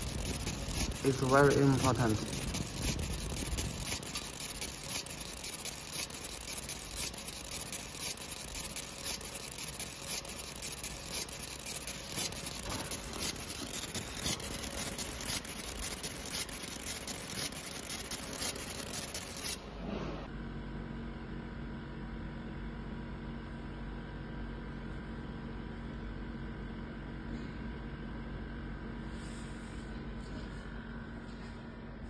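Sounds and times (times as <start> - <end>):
laser cutting metal crackling hiss: 0.0 - 19.6.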